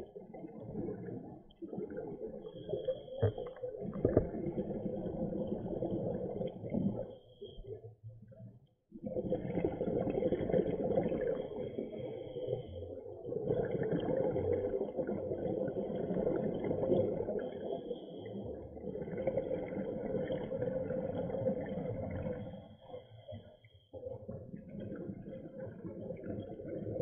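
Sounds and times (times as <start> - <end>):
underwater exhalation bubbles: 0.0 - 7.1, 13.2 - 17.7.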